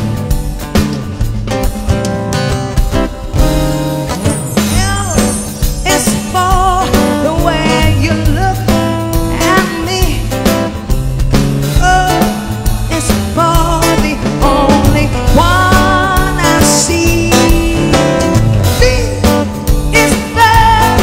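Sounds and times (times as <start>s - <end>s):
drums: 0.0s - 21.0s
guitar: 0.0s - 21.0s
woman singing into microphone: 4.0s - 10.5s, 11.7s - 21.0s.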